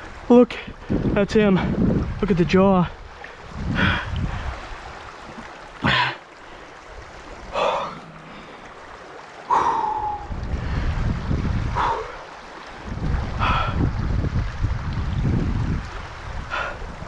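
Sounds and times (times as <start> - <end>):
stream running over gravel: 0.0 - 17.0
person breathing heavily: 3.7 - 4.6, 7.5 - 8.8, 9.5 - 11.0, 11.7 - 12.2, 13.4 - 13.9, 16.5 - 17.0.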